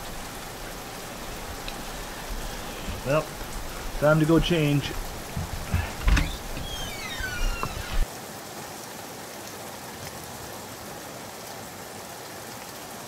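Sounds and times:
loud low bumps: 0.0 - 6.8
rain hissing: 0.0 - 8.1
short falling squeak: 2.3 - 8.0.

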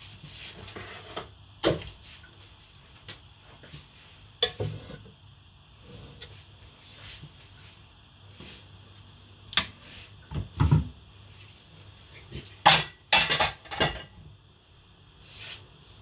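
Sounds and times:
sharp loud kitchen clanks: 12.6 - 14.2.

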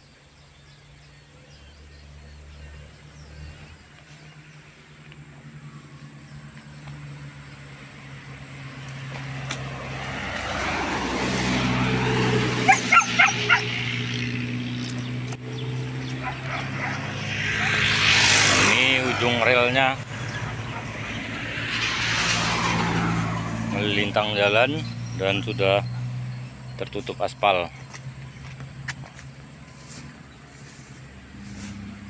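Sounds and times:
motor vehicle approaching: 0.0 - 32.0
dog barking: 12.7 - 13.8, 16.2 - 17.8.

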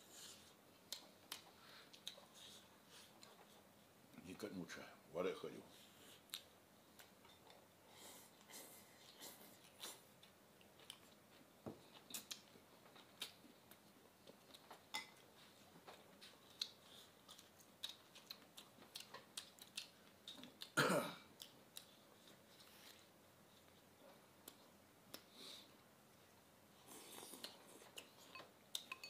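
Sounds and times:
quiet chewing: 0.1 - 4.2, 5.8 - 29.0
chopsticks clicking on bowls: 28.0 - 29.0.

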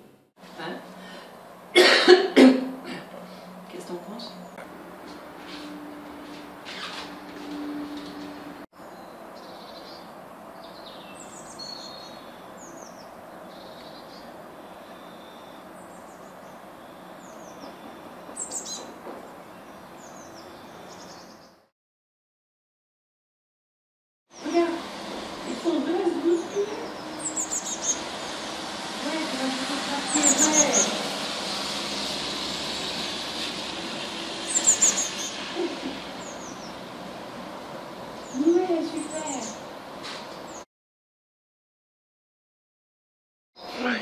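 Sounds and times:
birds chirping: 2.8 - 21.7, 24.3 - 40.7
bird chirps: 8.8 - 21.6, 26.2 - 28.1, 34.5 - 36.8
tyres hissing on a wet road: 24.4 - 40.4.

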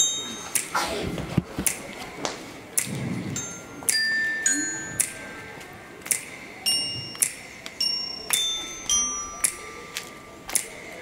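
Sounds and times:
bell-like mallet tones: 0.0 - 0.6, 3.4 - 5.6, 6.6 - 10.5
sharp percussive clicks: 0.5 - 0.8, 2.7 - 3.0, 5.0 - 5.2, 6.0 - 6.5, 7.1 - 8.5, 9.4 - 11.0.

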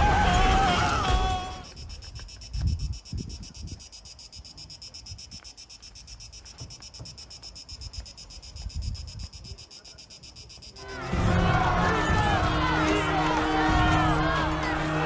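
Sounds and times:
music: 0.0 - 1.6, 10.8 - 15.0
cicadas buzzing: 0.0 - 10.9
voices: 9.4 - 15.0.

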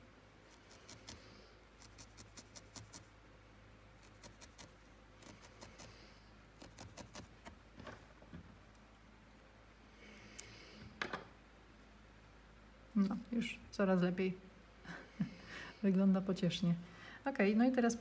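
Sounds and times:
felting needle poking wool: 0.5 - 3.1, 4.0 - 6.0, 6.6 - 7.6.

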